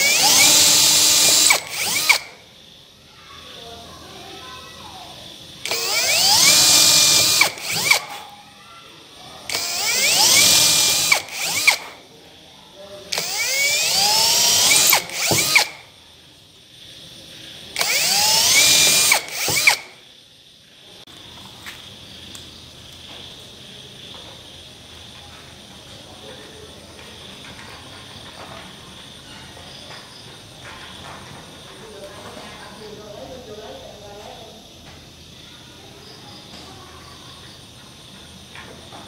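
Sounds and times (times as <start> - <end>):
cordless drill boring into wood: 0.0 - 2.4, 5.6 - 8.3, 9.5 - 12.0, 13.1 - 15.9, 17.8 - 20.0.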